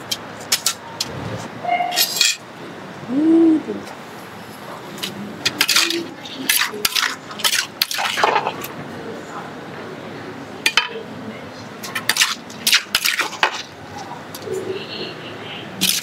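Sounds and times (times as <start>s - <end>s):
utensils knocking in a mortar: 5.0s - 8.6s.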